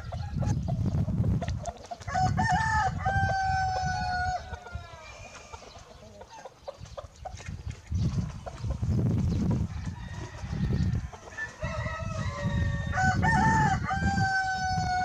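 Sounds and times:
chickens clucking: 0:00.0 - 0:15.0
rooster crowing: 0:02.1 - 0:05.3, 0:09.7 - 0:15.0.

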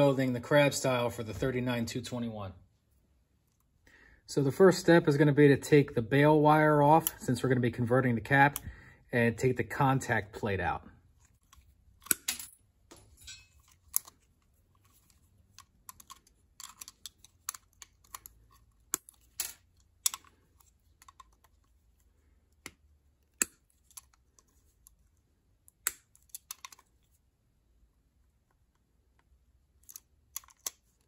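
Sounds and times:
pliers clicking on metal: 0:12.0 - 0:14.2, 0:15.6 - 0:20.4, 0:25.7 - 0:26.8, 0:29.8 - 0:30.8.

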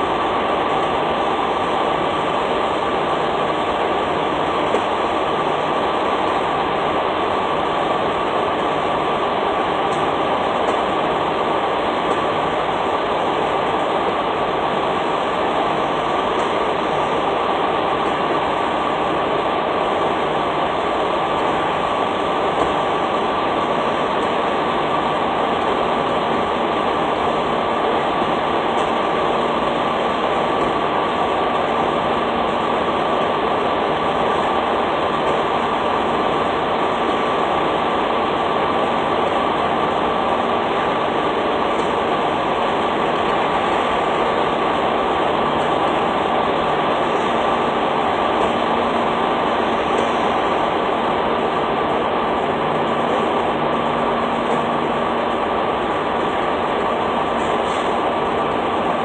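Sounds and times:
truck idling: 0:00.1 - 0:59.0.

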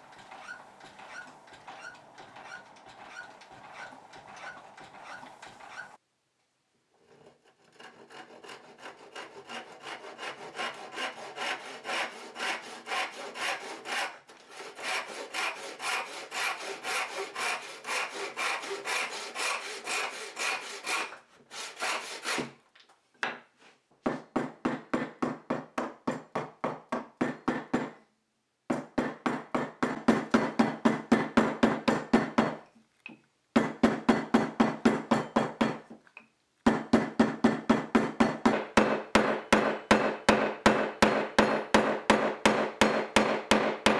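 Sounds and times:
saw cutting wood: 0:00.0 - 0:06.0, 0:07.5 - 0:22.6
hammer striking wood: 0:24.1 - 0:28.0, 0:28.7 - 0:32.6, 0:33.6 - 0:35.8, 0:36.6 - 0:43.9.

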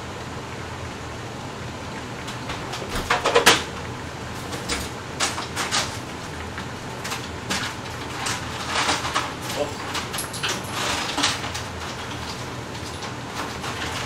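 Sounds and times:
kitchen knocks and clatters: 0:02.5 - 0:03.7, 0:07.0 - 0:14.0.

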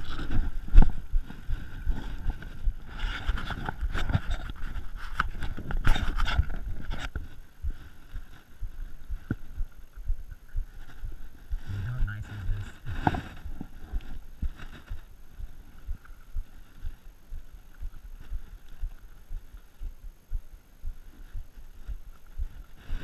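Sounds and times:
bike tyre rumble on dirt: 0:00.0 - 0:11.7.

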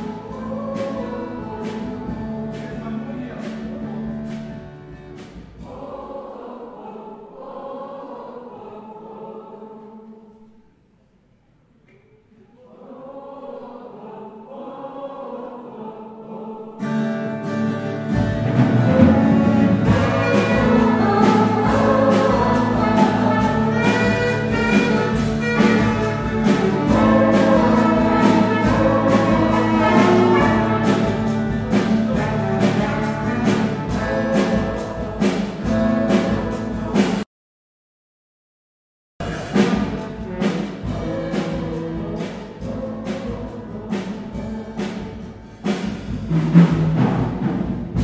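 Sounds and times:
choir singing: 0:00.0 - 0:04.4, 0:05.6 - 0:10.7, 0:12.5 - 0:37.2, 0:39.2 - 0:45.8
instrumental accompaniment with beat: 0:18.0 - 0:37.2.

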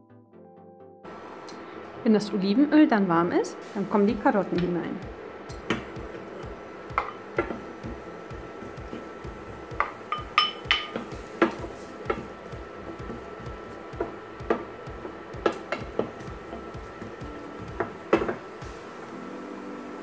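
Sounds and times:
ceramic bowl clinking on pan: 0:09.8 - 0:11.1.

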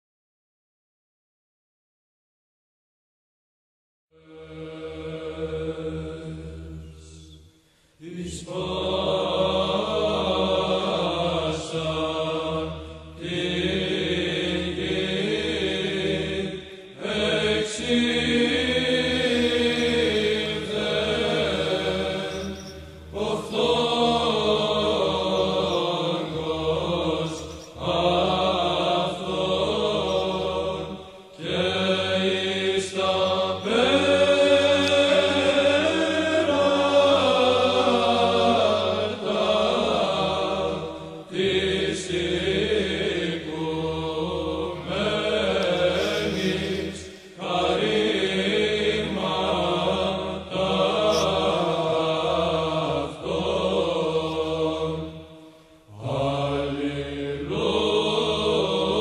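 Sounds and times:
held vocal drone: 0:04.2 - 0:59.0
voices chanting: 0:08.0 - 0:55.3, 0:55.9 - 0:59.0.

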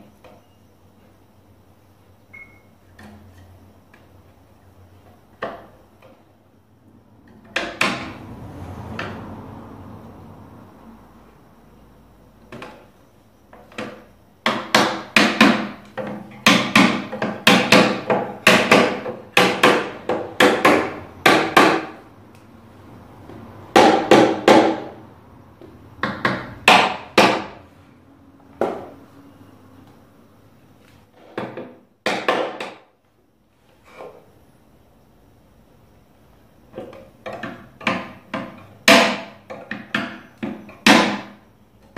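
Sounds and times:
hammer tapping wooden wedges: 0:13.5 - 0:22.0, 0:25.6 - 0:27.6, 0:31.3 - 0:32.9, 0:36.7 - 0:41.9.

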